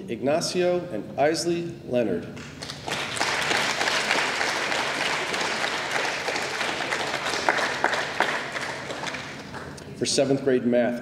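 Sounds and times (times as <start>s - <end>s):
audience applauding: 2.5s - 9.8s.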